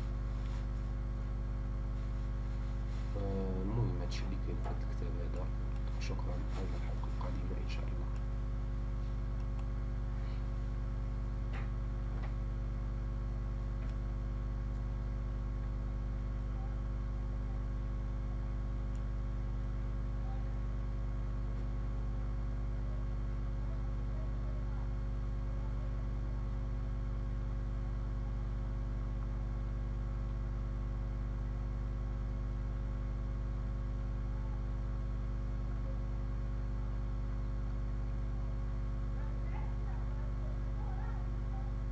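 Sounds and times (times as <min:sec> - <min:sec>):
electrical mains hum: 0:00.0 - 0:41.9.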